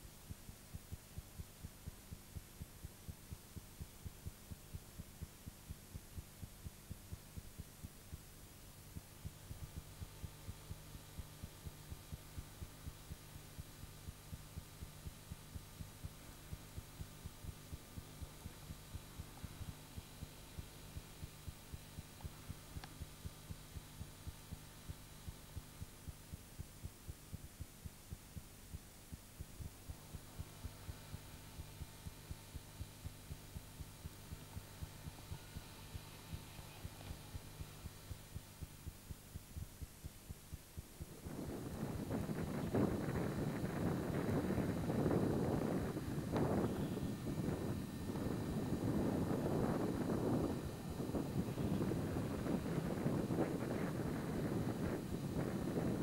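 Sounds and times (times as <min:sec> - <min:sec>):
low electrical hum: 0:00.0 - 0:56.0
soft low thumps: 0:00.0 - 0:56.0.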